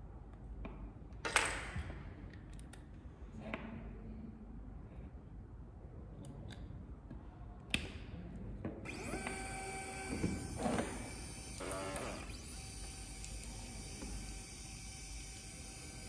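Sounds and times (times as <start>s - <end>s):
linear actuator motor whine: 8.8s - 16.0s.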